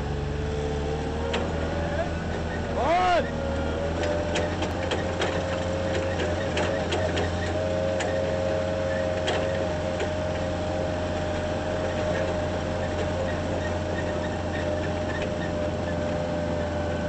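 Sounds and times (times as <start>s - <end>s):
forklift engine rumble: 0.0s - 17.0s
light rattles: 3.6s - 17.0s.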